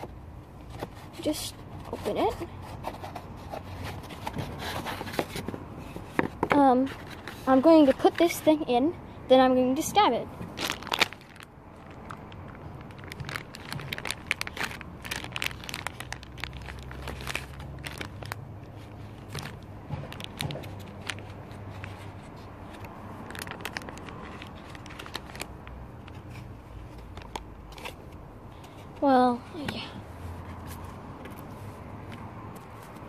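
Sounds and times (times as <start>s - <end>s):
plastic bag crinkling: 10.5s - 22.3s, 23.1s - 28.0s.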